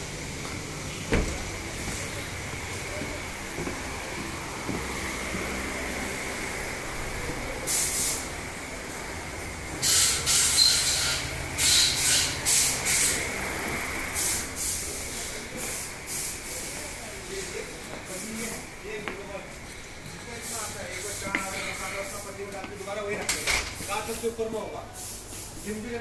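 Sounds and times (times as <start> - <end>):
machine hum: 0.0 - 16.0
compressed air hisses: 6.4 - 26.0.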